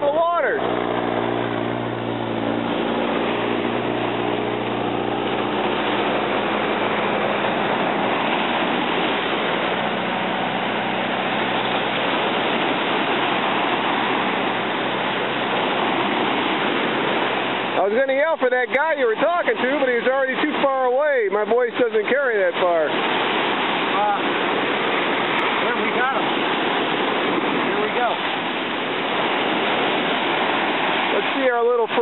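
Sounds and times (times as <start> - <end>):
low engine hum: 0.0 - 32.0
waves breaking on beach: 0.0 - 32.0.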